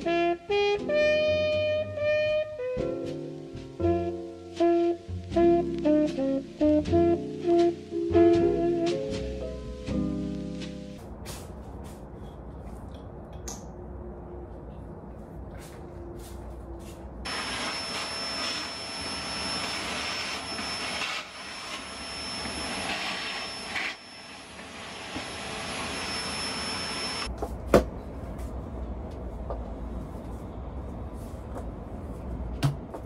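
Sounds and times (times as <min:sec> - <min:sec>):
floor mop: 0:15.6 - 0:27.3
vacuum cleaner whining: 0:17.3 - 0:27.3.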